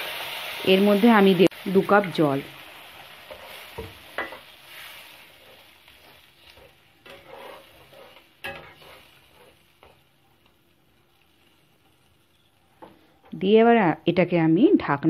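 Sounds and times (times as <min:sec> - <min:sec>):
light sizzle: 0:00.0 - 0:15.0
spatula scraping a pan: 0:03.3 - 0:10.2.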